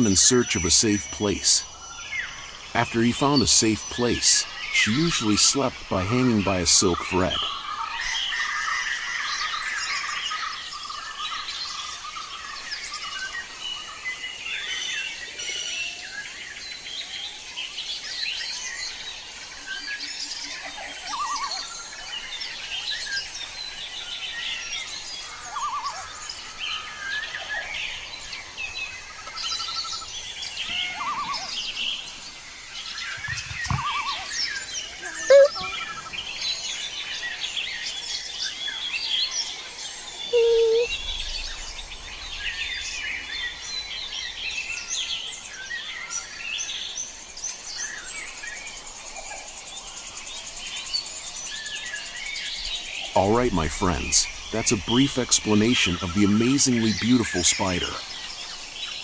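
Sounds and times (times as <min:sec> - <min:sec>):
small birds chirping: 0:00.0 - 0:59.0
bird trills: 0:33.1 - 0:36.1, 0:40.3 - 0:41.4.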